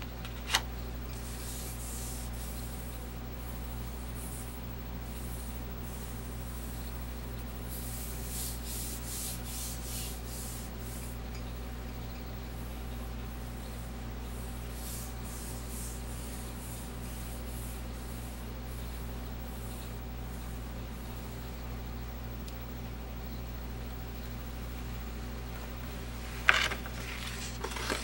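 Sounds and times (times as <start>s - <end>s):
steady low hum: 0.0s - 28.0s
hand rubbing paper: 1.2s - 6.8s, 7.7s - 11.2s, 14.3s - 19.9s, 26.2s - 28.0s.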